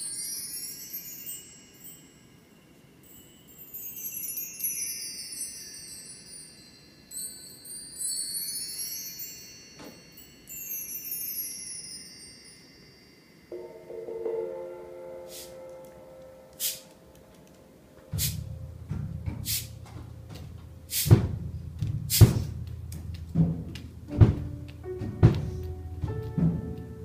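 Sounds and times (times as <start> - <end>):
bar chimes ringing: 0.0 - 20.9.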